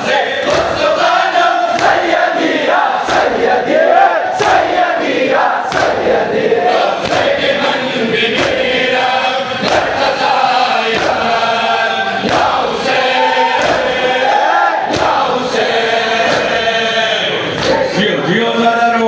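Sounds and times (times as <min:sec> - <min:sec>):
crowd chanting: 0:00.0 - 0:19.0
men slapping chests in unison: 0:00.4 - 0:16.7, 0:17.5 - 0:18.0
man singing through microphone: 0:15.1 - 0:19.0.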